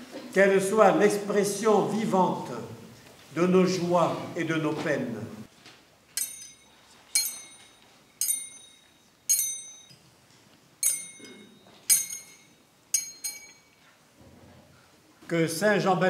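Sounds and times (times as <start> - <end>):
metal censer clinking: 6.1 - 14.0.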